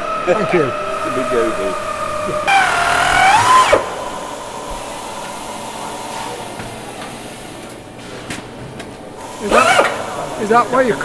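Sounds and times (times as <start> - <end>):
pneumatic nibbler cutting metal: 2.5 - 4.0, 9.2 - 11.0.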